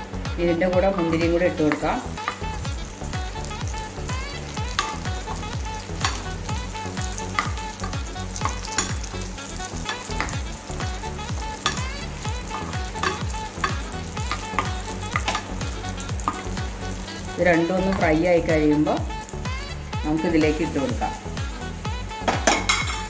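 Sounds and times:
nuts sizzling in oil: 0:00.0 - 0:23.0
spoon scraping a pan: 0:01.0 - 0:02.6, 0:04.5 - 0:18.2, 0:22.3 - 0:23.0.

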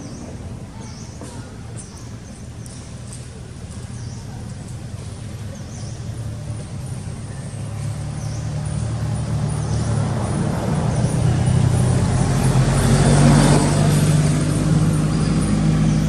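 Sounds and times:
vehicle engine approaching: 0:00.0 - 0:16.0.

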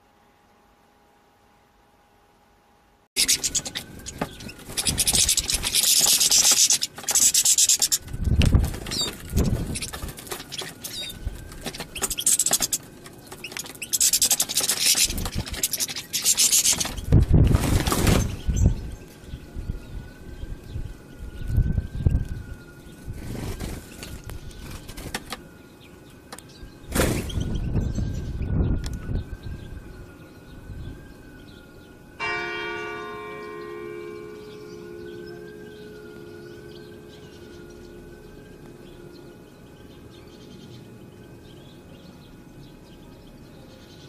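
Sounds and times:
faint steady whine: 0:00.0 - 0:44.0
low rumble of street traffic: 0:00.0 - 0:44.0
birds scratching and fluttering: 0:03.2 - 0:19.3, 0:21.4 - 0:25.6.

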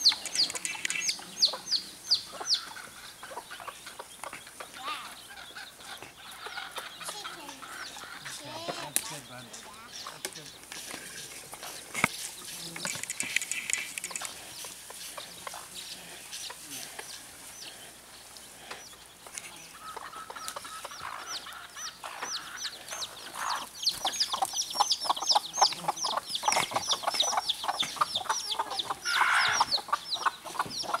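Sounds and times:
chicks peeping: 0:00.0 - 0:31.0
hens clucking: 0:00.0 - 0:31.0.

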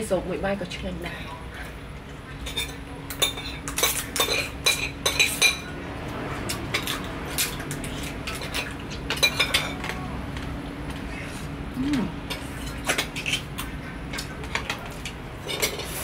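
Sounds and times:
dishes and utensils clinking: 0:02.3 - 0:05.8, 0:06.4 - 0:11.0, 0:12.2 - 0:16.0.

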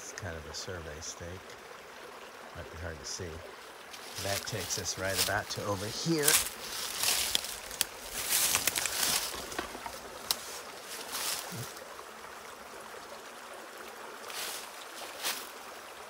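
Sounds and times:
creek rushing: 0:00.0 - 0:16.0
footsteps crunching through dry leaves: 0:03.9 - 0:11.8, 0:14.3 - 0:15.6.

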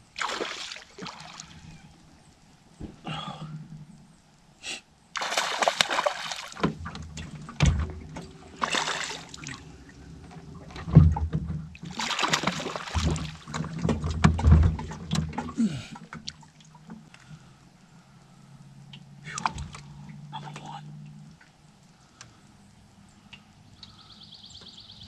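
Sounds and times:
fish splashing at water surface: 0:00.1 - 0:01.7, 0:05.2 - 0:06.8, 0:08.4 - 0:09.9, 0:11.8 - 0:14.0.

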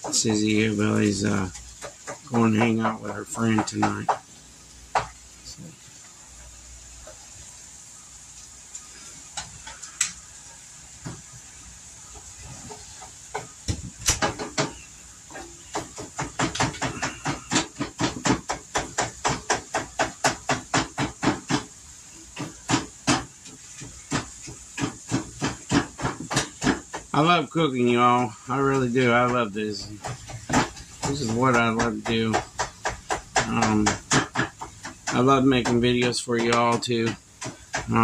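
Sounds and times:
continuous hiss: 0:00.0 - 0:38.0
spatula scraping frying pan: 0:20.9 - 0:38.0.

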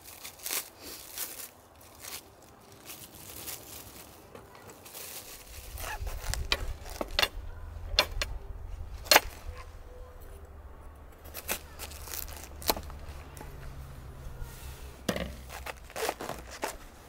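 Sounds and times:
plastic bag rustling and crinkling: 0:00.0 - 0:07.4, 0:11.2 - 0:13.8, 0:14.4 - 0:17.0.

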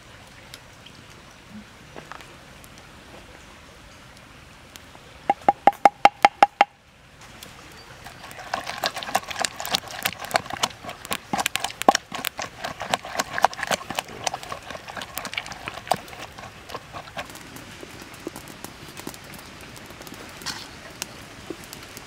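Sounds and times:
wooden pestle pounding in mortar: 0:05.3 - 0:06.7, 0:08.3 - 0:17.3.

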